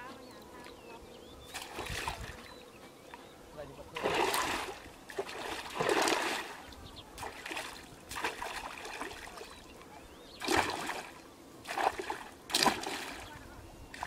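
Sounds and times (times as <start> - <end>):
splashing in shallow water: 1.5 - 2.5, 3.9 - 14.0.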